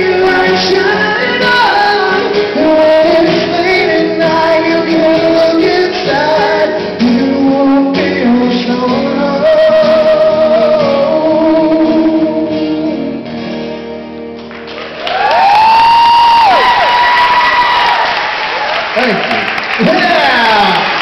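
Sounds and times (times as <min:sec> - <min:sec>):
man singing long notes: 0:00.0 - 0:13.3
acoustic guitars strumming: 0:00.0 - 0:15.1.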